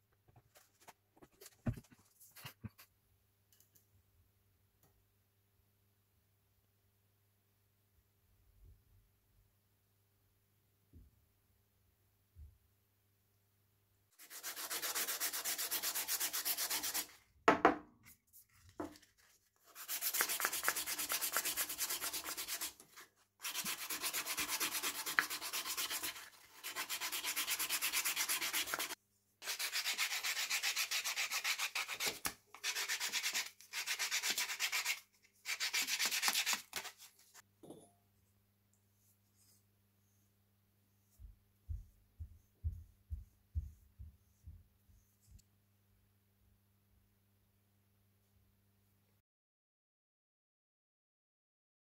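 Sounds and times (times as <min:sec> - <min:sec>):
sandpaper rubbing wood: 0:14.2 - 0:17.2, 0:19.6 - 0:37.0.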